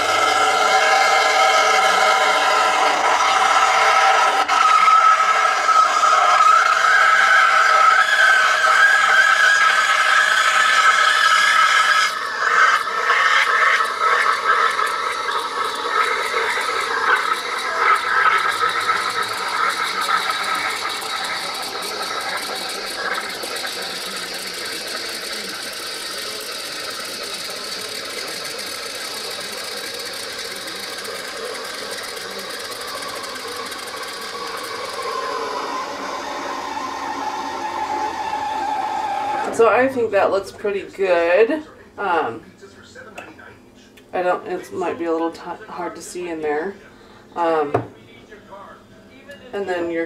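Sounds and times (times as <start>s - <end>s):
steam wand hissing: 0.0s - 39.9s
steam wand whistling: 0.0s - 40.0s.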